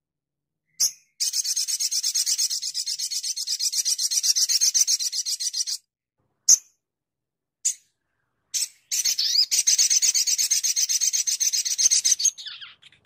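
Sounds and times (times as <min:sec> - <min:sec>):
bird chirp: 0:00.6 - 0:06.8, 0:07.6 - 0:13.0
rapid high bird trill: 0:00.7 - 0:05.8, 0:08.6 - 0:13.0.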